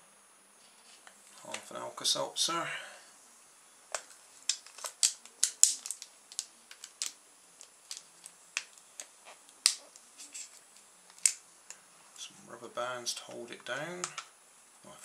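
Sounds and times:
clicks of handling small objects: 3.9s - 11.8s.

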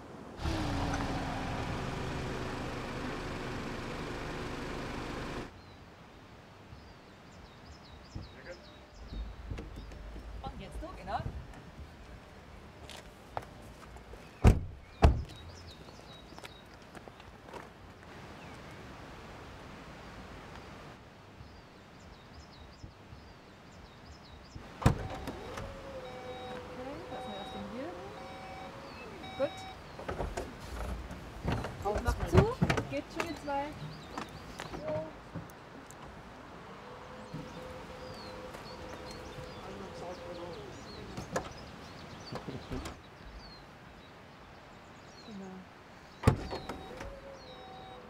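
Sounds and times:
electric tailgate motor hum: 0.4s - 5.5s, 24.8s - 29.7s
faint birdsong: 0.4s - 19.0s, 19.9s - 48.0s.

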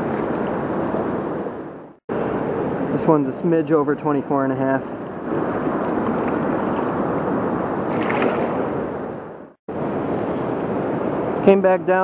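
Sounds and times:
river current rushing: 4.8s - 11.4s.

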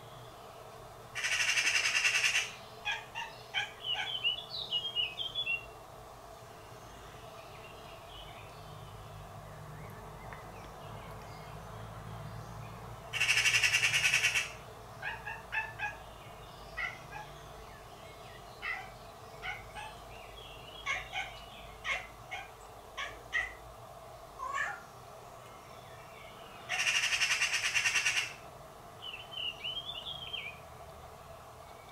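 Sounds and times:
magpies rattling alarm chatter: 1.2s - 4.4s, 13.1s - 16.0s, 26.7s - 28.4s.

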